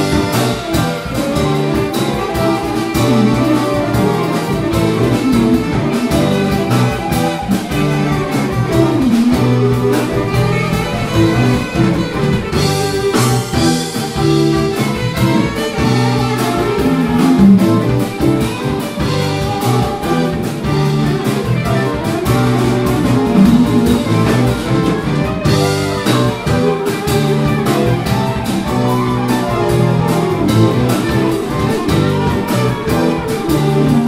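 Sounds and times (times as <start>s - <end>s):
jazz fusion band playing: 0.0s - 34.0s
tenor saxophone line: 0.0s - 34.0s.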